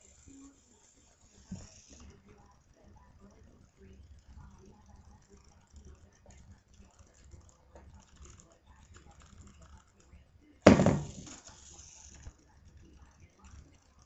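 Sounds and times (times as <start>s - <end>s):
small robot ticking and rattling: 0.0s - 10.2s
robot clattering onto wooden floor: 10.7s - 11.4s.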